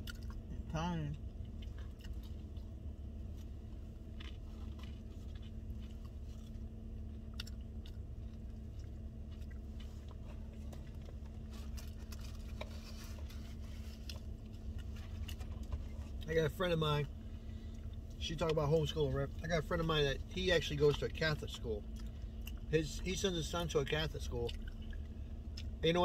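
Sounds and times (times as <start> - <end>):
person chewing a tortilla wrap: 0.0 - 26.0
steady low hum: 0.0 - 26.0.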